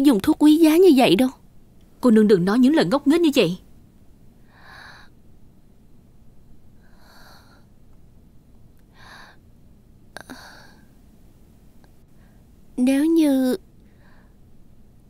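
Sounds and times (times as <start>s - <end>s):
woman sighing breaths: 10.2s - 10.9s.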